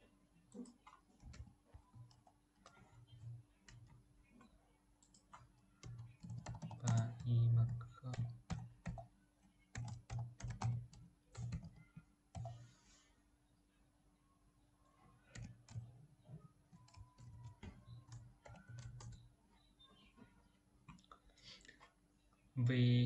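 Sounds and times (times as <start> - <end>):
computer keyboard typing: 0.5 - 12.7, 15.2 - 19.3.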